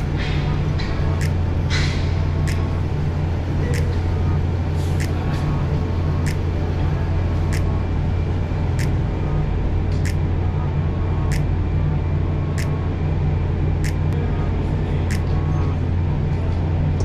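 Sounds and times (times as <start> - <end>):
ferry machinery drone: 0.0 - 17.0
sharp click: 0.8 - 2.7, 15.1 - 15.4.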